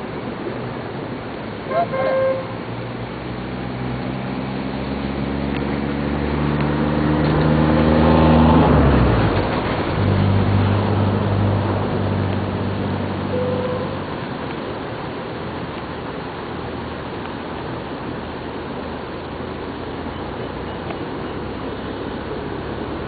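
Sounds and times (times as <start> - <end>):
vehicle engine accelerating: 1.7 - 17.2, 18.6 - 23.0.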